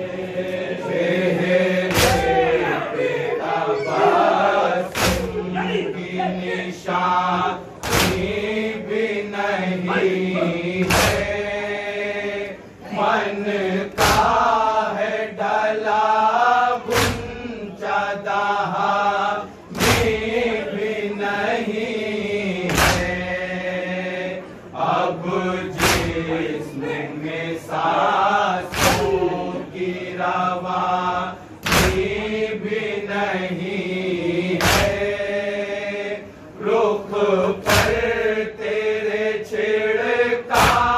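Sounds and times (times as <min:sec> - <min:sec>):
men chanting in unison: 0:00.0 - 0:40.9
collective chest slaps: 0:01.8 - 0:02.5, 0:04.9 - 0:05.5, 0:07.8 - 0:08.4, 0:10.8 - 0:11.4, 0:13.9 - 0:14.5, 0:16.9 - 0:17.4, 0:19.7 - 0:20.3, 0:22.7 - 0:23.2, 0:25.7 - 0:26.4, 0:28.7 - 0:29.2, 0:31.6 - 0:32.2, 0:34.6 - 0:35.2, 0:37.6 - 0:38.2, 0:40.5 - 0:40.9.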